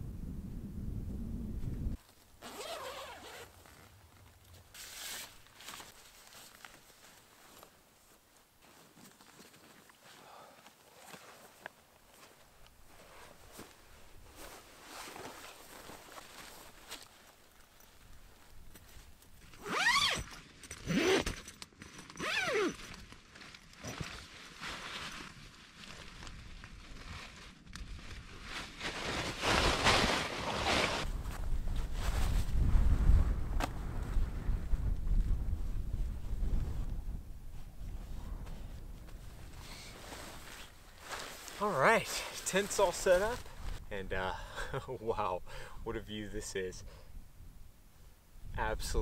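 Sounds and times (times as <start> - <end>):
tent zipper pulled open: 2.4 - 3.9, 4.7 - 5.9, 19.5 - 23.0, 29.2 - 31.1
small scrapes: 4.7 - 6.2.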